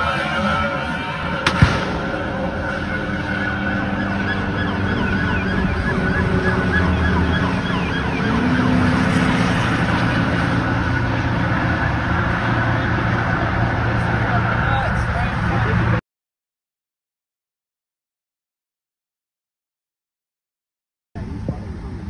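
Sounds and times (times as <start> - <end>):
highway traffic noise: 0.0 - 16.0, 21.2 - 22.0
police sirens yelping: 0.0 - 16.0.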